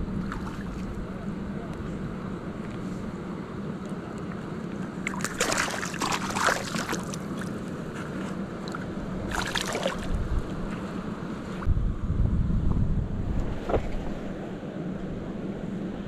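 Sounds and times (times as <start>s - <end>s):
steady low hum: 0.0s - 16.0s
water splashing and sloshing: 0.1s - 1.0s, 4.1s - 11.7s.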